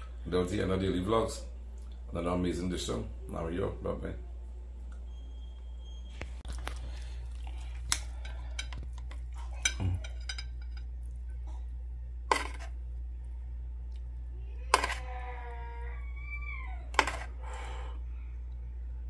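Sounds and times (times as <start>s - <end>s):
steady low hum: 0.0s - 19.0s
cutlery clinking on metal pan: 9.6s - 10.9s.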